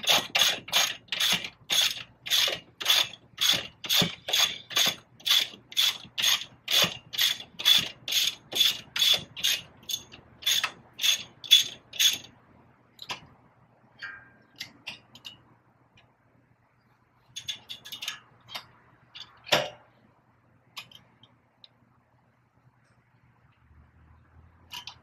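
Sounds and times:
ratchet wrench clicking: 0.0s - 12.3s, 24.7s - 25.0s.

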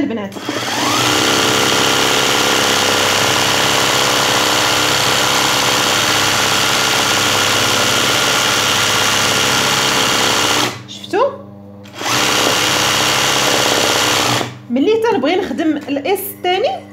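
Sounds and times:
sewing machine running: 0.3s - 10.8s, 11.9s - 14.6s.

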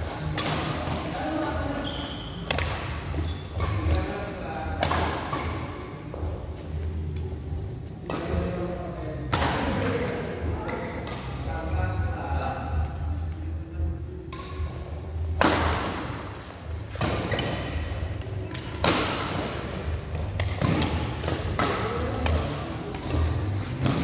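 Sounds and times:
rackets hitting shuttlecock: 0.0s - 1.5s, 2.4s - 6.1s, 9.3s - 9.9s, 14.3s - 24.0s.

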